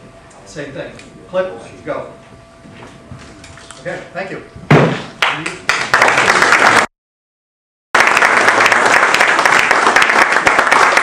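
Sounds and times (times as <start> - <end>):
audience applauding: 5.2 - 6.9, 8.0 - 11.0.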